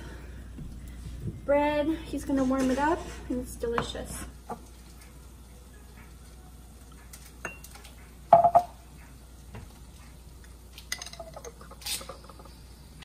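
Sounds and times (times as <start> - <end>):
glass bottle clinking ceramic cup: 7.4 - 8.8, 10.9 - 12.4.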